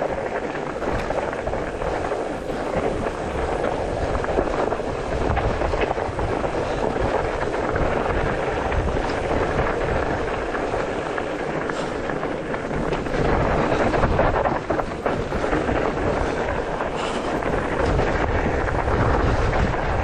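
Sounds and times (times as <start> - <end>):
bike rattling and knocking: 0.0 - 20.0
bike tyres rumbling on dirt: 0.0 - 20.0
wind on microphone: 0.0 - 20.0.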